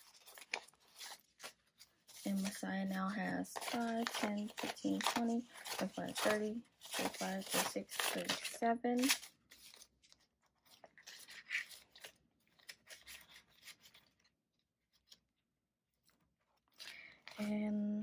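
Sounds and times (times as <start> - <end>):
paper banknotes rustling: 0.0 - 14.3
plastic envelope crinkling: 0.0 - 14.3.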